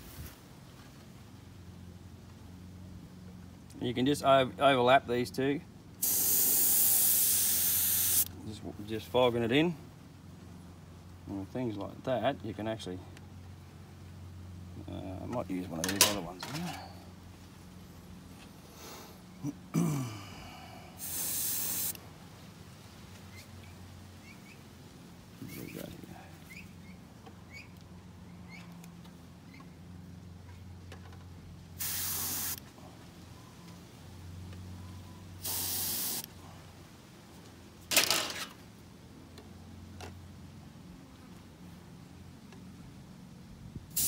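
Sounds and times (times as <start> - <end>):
airbrush spraying hisses: 6.0 - 8.3, 21.0 - 22.0, 31.8 - 32.6, 35.4 - 36.3.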